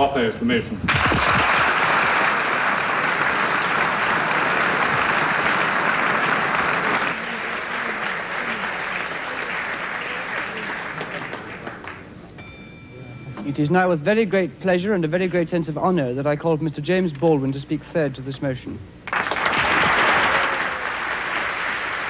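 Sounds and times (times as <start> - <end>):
large audience applauding: 0.9 - 12.1, 19.0 - 22.0.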